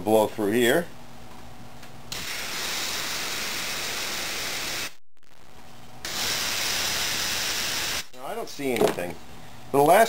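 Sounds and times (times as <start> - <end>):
compressed air hissing from hose: 6.0 - 8.1.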